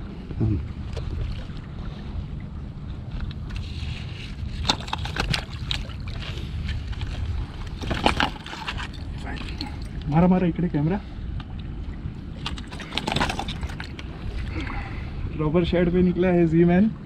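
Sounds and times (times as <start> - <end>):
wind rumble on microphone: 0.0 - 17.0.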